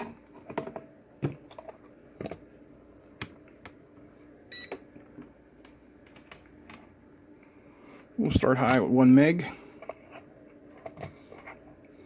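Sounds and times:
multimeter beep: 4.5s - 4.8s.

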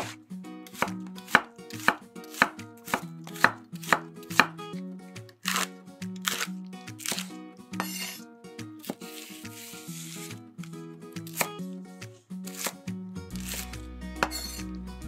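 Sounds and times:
light background music: 0.0s - 15.0s
knife chopping on wooden board: 0.8s - 4.6s, 5.5s - 8.2s, 11.3s - 11.5s, 12.5s - 12.8s, 14.2s - 14.6s.

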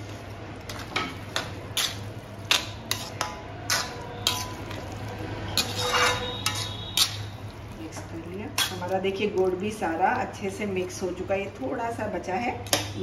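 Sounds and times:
metal spatula scraping a pan: 0.7s - 7.4s, 8.5s - 8.9s.

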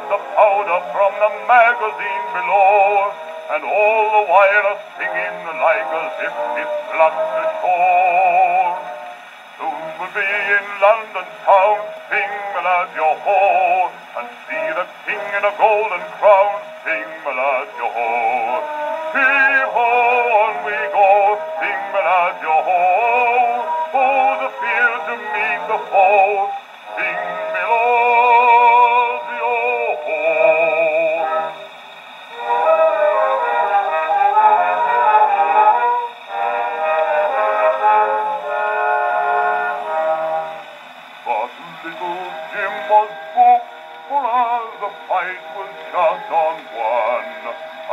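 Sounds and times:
man singing on gramophone record: 0.0s - 47.9s.

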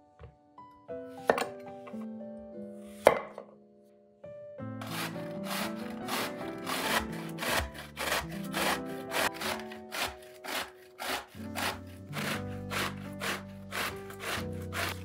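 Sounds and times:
background music: 0.0s - 15.0s
vegetable grating on metal grater: 4.8s - 15.0s.

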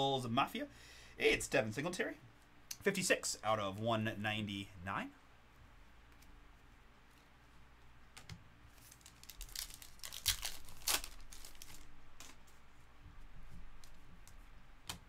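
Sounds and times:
packaging crinkling and rustling: 8.7s - 12.6s.

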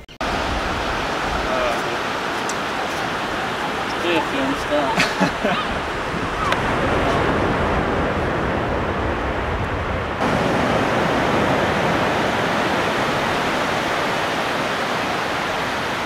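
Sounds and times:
wind on microphone: 0.0s - 16.0s
surf breaking on beach: 0.2s - 16.0s.

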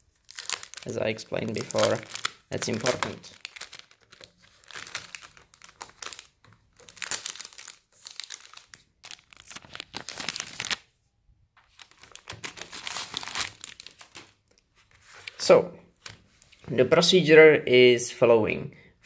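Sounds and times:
plastic wrapping crinkling: 0.0s - 10.9s, 11.6s - 15.4s.

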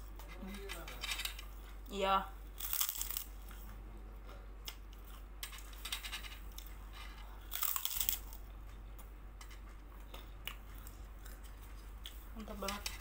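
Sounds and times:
crunching crisp cracker: 2.5s - 3.6s, 6.5s - 8.8s.

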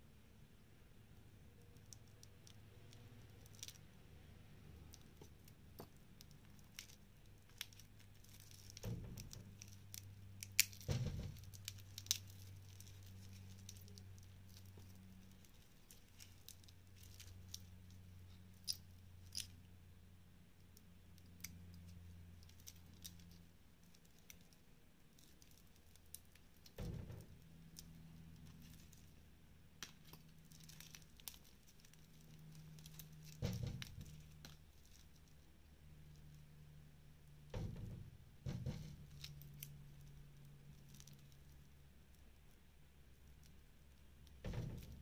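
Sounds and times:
plastic film crinkling: 4.9s - 19.5s, 21.8s - 36.3s.

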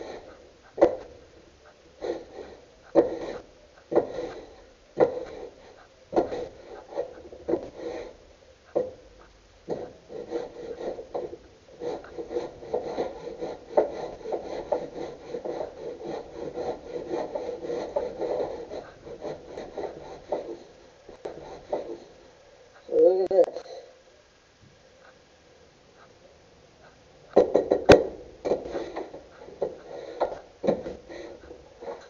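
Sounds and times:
hand plane scraping wood: 0.0s - 9.1s, 9.7s - 22.2s, 27.4s - 32.0s
knocks: 0.8s - 1.2s, 2.9s - 4.4s, 6.1s - 7.9s, 27.3s - 32.0s.

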